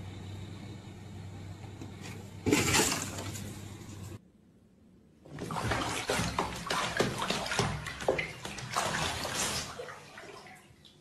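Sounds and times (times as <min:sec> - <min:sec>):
water splashing in bathtub: 0:05.2 - 0:11.0.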